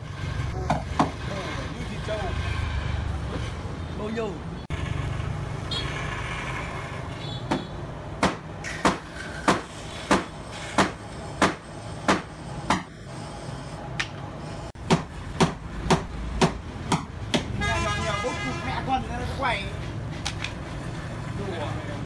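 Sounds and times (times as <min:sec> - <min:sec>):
hammer striking wooden bed frame: 0:07.5 - 0:12.9, 0:14.8 - 0:17.5.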